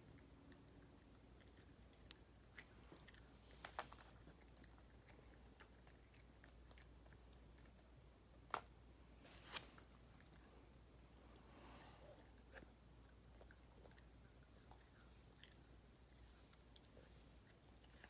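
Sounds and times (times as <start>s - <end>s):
dog chewing crunchy snack: 0.2s - 7.8s, 12.1s - 18.0s.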